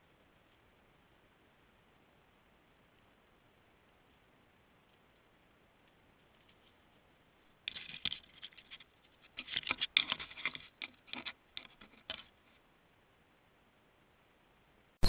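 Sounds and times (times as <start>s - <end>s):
animal scratching at camera: 7.7s - 12.4s.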